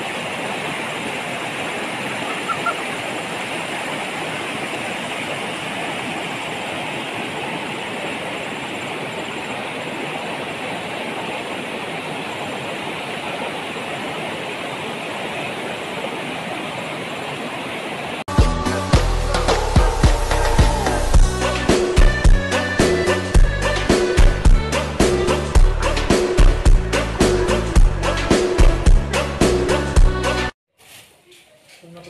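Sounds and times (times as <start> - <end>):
river rushing over stones: 0.0 - 18.3.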